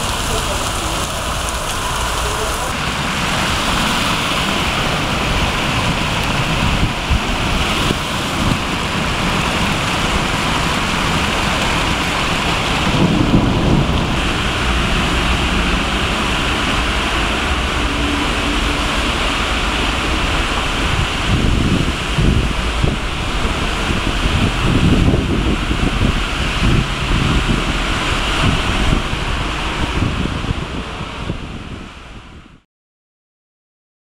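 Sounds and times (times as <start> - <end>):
running water: 0.0 - 31.2
heavy rain pouring on street: 0.0 - 32.6
low surge: 12.6 - 32.1.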